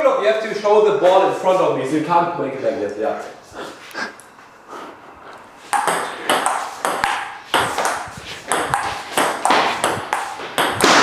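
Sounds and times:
table tennis ball rally: 0:05.7 - 0:11.0.

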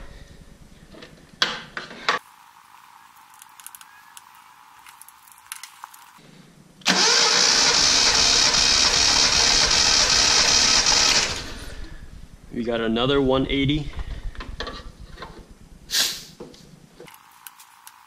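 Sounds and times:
engine cranking on starter motor: 0:06.8 - 0:12.0.

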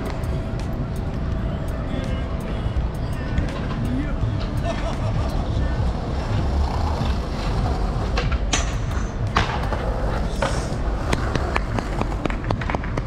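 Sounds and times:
city street noise: 0:00.0 - 0:13.0.

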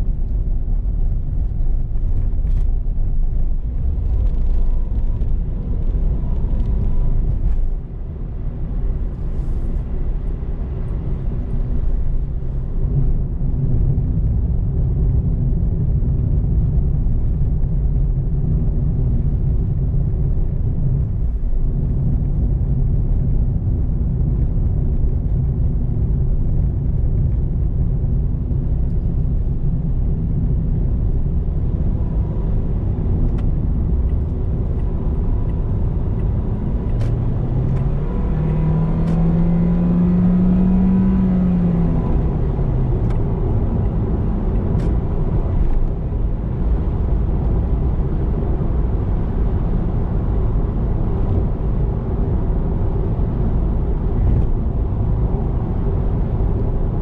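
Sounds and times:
tyre and engine rumble: 0:00.0 - 0:57.0.

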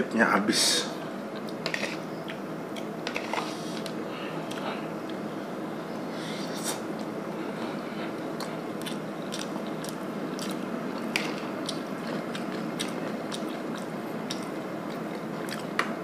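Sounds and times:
person chewing: 0:01.3 - 0:01.6, 0:07.7 - 0:16.0.

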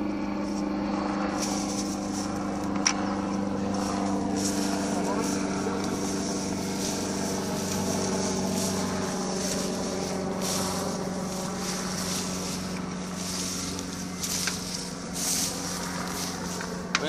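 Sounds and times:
engine hum: 0:00.0 - 0:17.0.

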